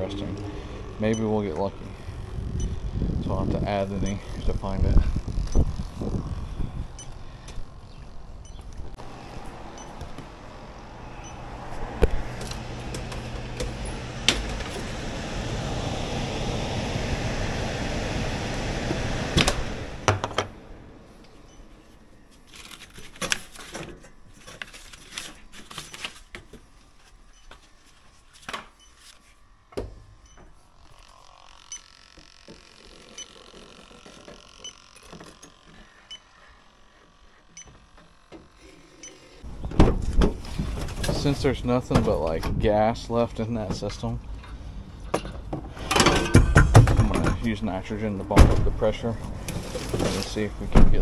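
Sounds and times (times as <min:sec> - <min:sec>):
steady rushing noise: 0:07.7 - 0:21.5.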